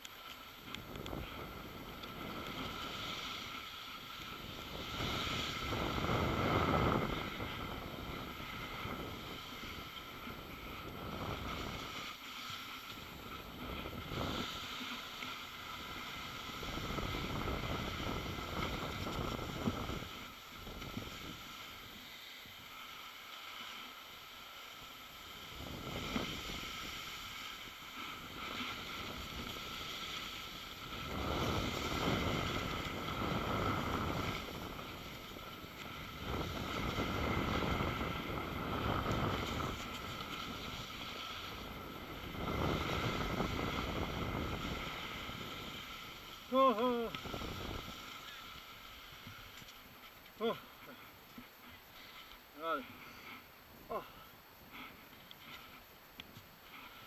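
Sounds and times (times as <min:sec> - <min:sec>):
wind buffeting microphone: 0:04.4 - 0:12.0, 0:13.0 - 0:14.7, 0:15.6 - 0:21.5, 0:25.4 - 0:46.4, 0:47.0 - 0:48.1.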